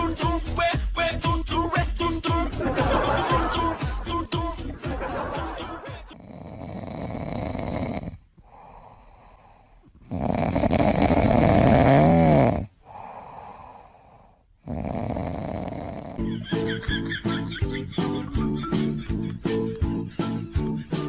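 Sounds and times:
music: 0.0 - 6.2, 16.2 - 21.0
kitten snoring: 6.1 - 16.3.

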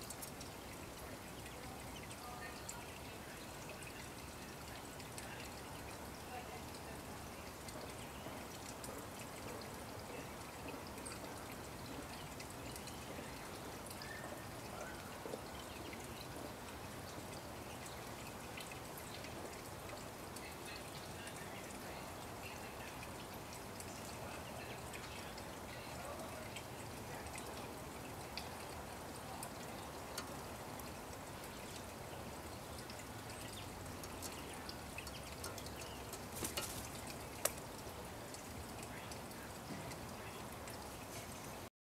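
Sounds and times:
soft water-like hiss: 0.0 - 41.7
faint bird chirps: 13.9 - 16.3.

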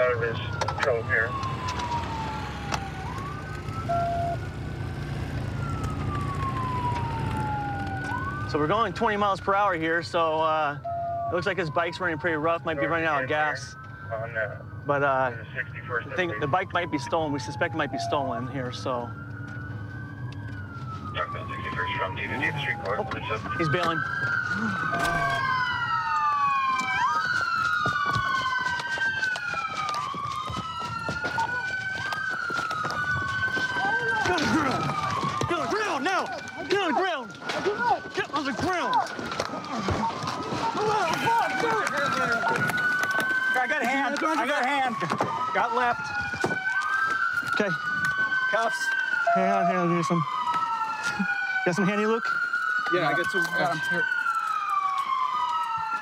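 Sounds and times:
car engine and tyres droning: 0.0 - 10.2
police siren wailing: 0.0 - 56.0.

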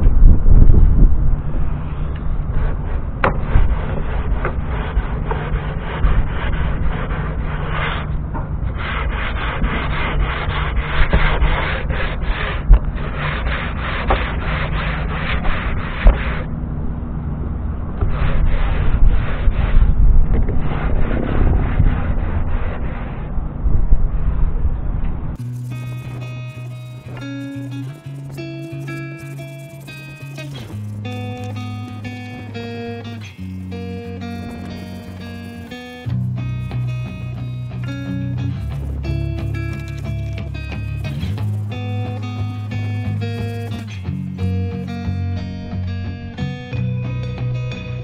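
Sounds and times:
sanding block scratching wood: 3.5 - 8.1, 8.7 - 16.4, 25.4 - 45.2.

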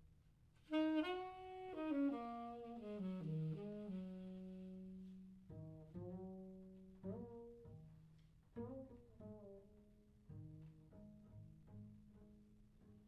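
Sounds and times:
saxophone playing low notes: 0.6 - 7.6.

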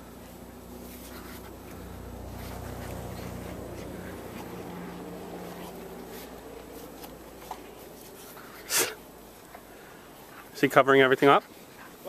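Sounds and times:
low hum: 0.0 - 10.3.

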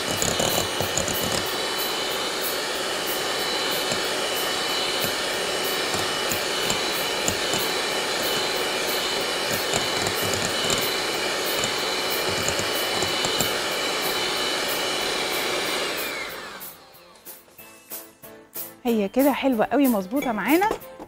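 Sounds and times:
electric hand mixer running: 0.0 - 17.0.

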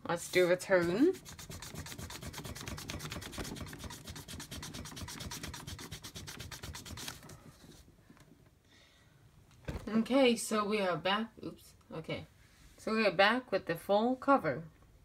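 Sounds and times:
eraser rubbing on paper: 0.2 - 7.2.

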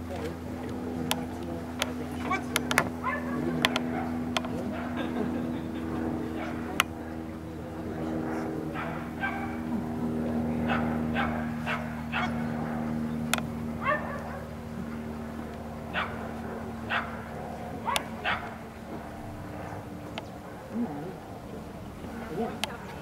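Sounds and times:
low steady hum: 0.0 - 23.0
dog yipping and barking: 3.0 - 3.4, 13.8 - 14.4.

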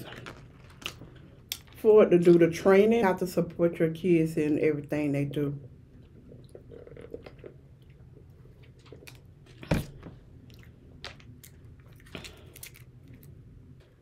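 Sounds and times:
plastic packet crinkling: 0.0 - 1.8
mouth eating sounds: 6.1 - 9.3.

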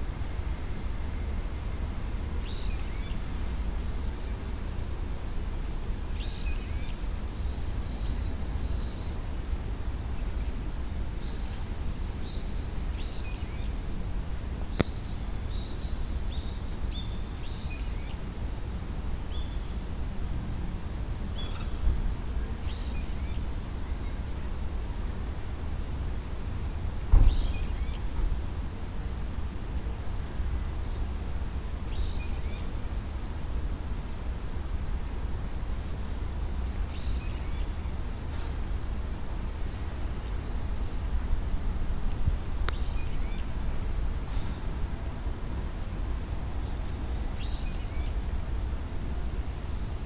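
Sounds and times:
steady low rumble: 0.0 - 50.0
dull thump: 27.1 - 27.4.

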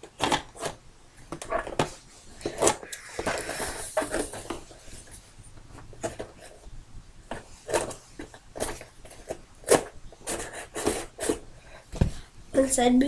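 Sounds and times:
box rustling: 0.0 - 5.2.

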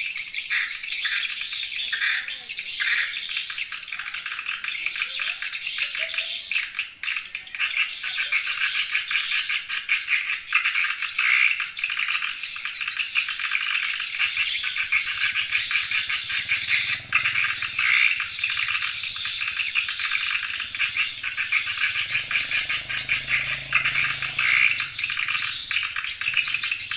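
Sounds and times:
rattling bird chirps: 0.0 - 26.9.

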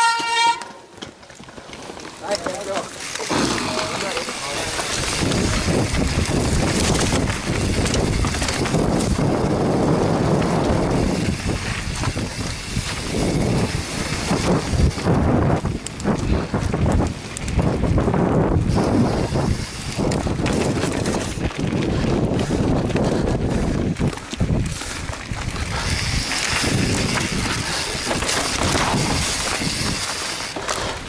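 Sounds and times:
bike rattling over bumps: 0.0 - 31.0
wind buffeting microphone: 3.3 - 31.0.

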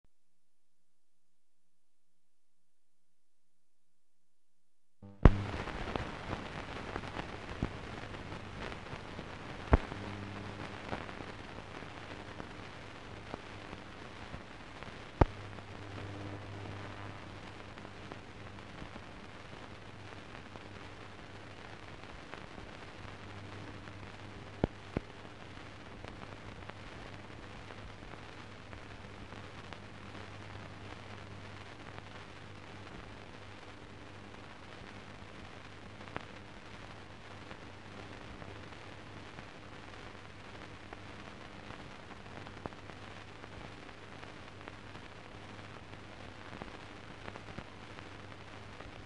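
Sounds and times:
sharp pops and clicks: 5.0 - 11.1, 15.1 - 15.5, 24.5 - 25.1
faint low hum: 5.0 - 49.0
steady film hiss: 5.0 - 49.0.

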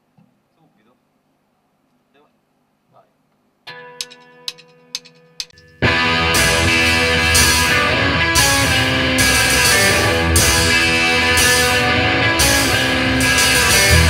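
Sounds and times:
electric guitars: 3.7 - 14.0
drums with cymbals: 4.0 - 14.0
bass guitar: 5.6 - 14.0.

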